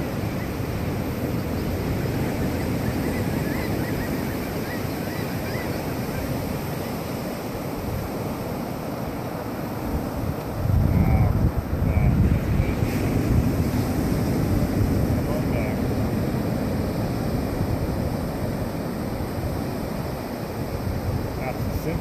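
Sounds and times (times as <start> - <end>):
ocean surf breaking on beach: 0.0 - 22.0.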